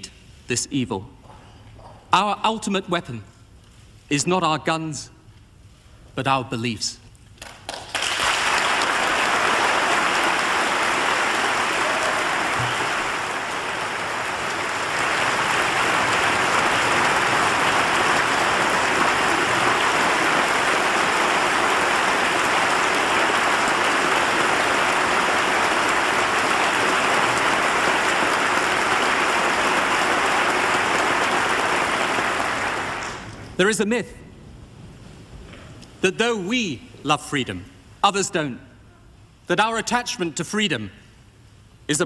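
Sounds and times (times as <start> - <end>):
crowd clapping: 7.4 - 33.5.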